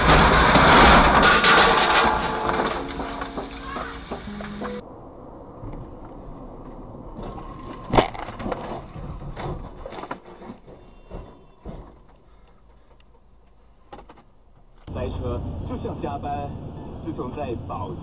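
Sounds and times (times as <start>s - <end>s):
clattering knocks and scrapes: 0.0s - 4.8s, 5.6s - 14.9s
loud car crash: 0.0s - 4.8s
road noise inside car: 14.3s - 18.0s.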